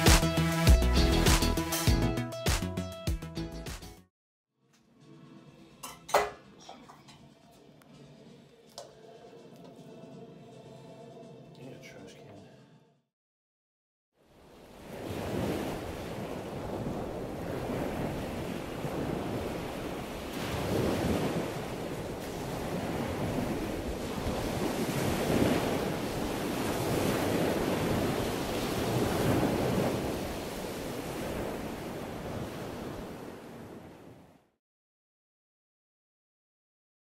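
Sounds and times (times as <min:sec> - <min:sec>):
ocean surf washing: 0:14.3 - 0:34.3.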